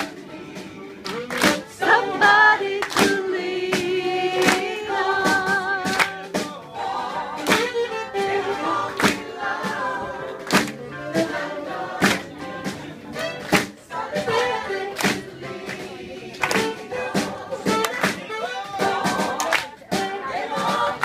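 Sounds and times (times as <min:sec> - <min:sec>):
voices singing: 0:00.0 - 0:21.0
sharp claps or knocks: 0:01.0 - 0:01.6, 0:02.8 - 0:04.7, 0:05.9 - 0:06.2, 0:10.4 - 0:10.8, 0:13.4 - 0:13.8, 0:15.0 - 0:15.8, 0:16.4 - 0:16.7.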